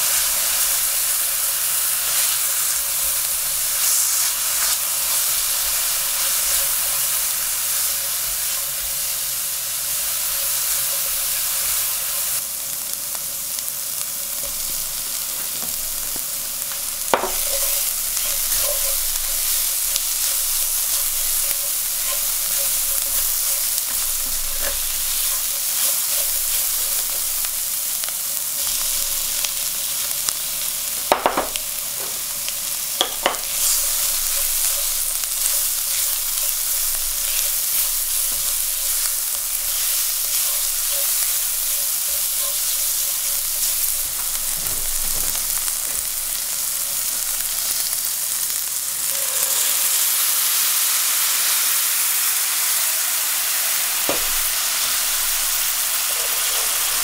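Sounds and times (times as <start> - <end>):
onion sizzling in oil: 0.0 - 57.0
spatula tapping pan: 15.3 - 27.6, 33.0 - 44.4.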